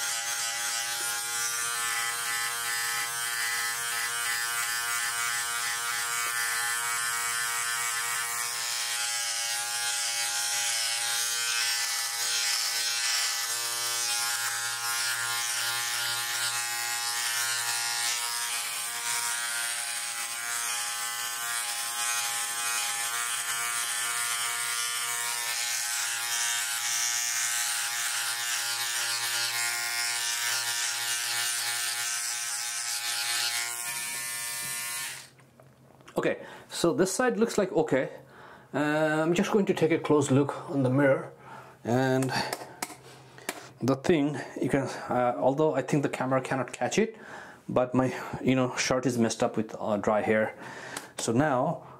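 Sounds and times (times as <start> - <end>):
electric shaver buzzing: 0.0 - 35.4.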